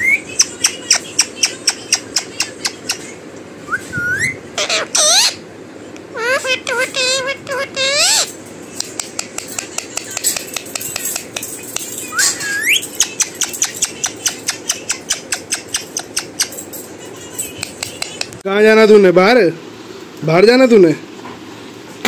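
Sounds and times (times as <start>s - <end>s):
parrot chirping: 0.0s - 5.5s, 6.1s - 18.4s
parrot rising whistle: 3.7s - 5.4s, 12.1s - 12.8s.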